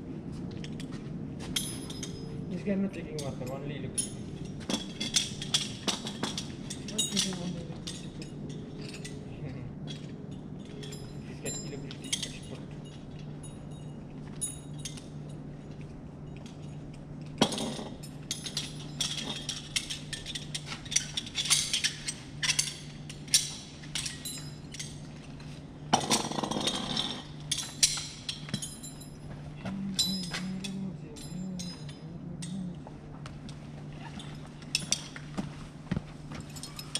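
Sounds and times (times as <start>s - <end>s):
steady low hum: 0.0s - 36.9s
metal harness hardware clinking: 1.5s - 2.4s, 3.2s - 9.3s, 9.9s - 32.8s, 34.0s - 35.6s, 36.3s - 36.9s.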